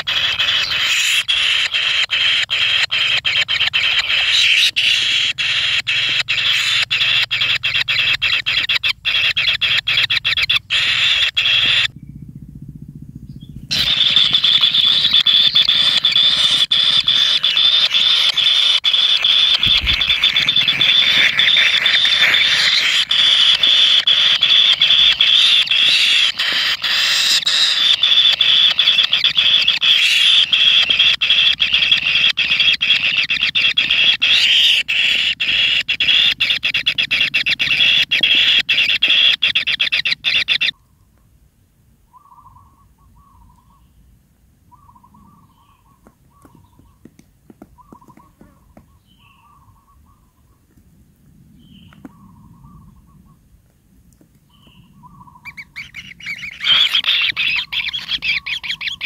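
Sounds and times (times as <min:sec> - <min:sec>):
nestlings begging calls: 0:00.0 - 0:12.4, 0:13.2 - 0:40.8, 0:42.1 - 0:43.8, 0:44.7 - 0:50.4, 0:54.5 - 0:59.0
faint chirps: 0:00.0 - 0:33.1, 0:54.5 - 0:59.0.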